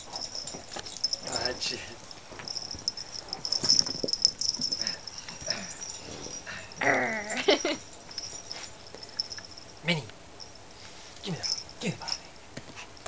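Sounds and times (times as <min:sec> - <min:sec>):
dog playing with a ball: 0:00.0 - 0:06.5.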